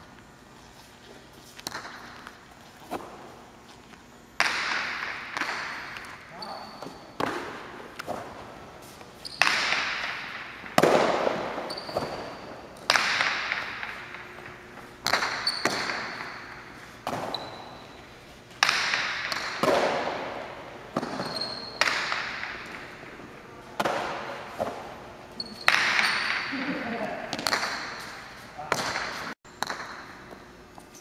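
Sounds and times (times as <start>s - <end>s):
ball cracking against walls: 4.4s - 6.2s, 9.3s - 17.6s, 18.5s - 23.0s, 23.8s - 25.0s, 25.6s - 26.5s.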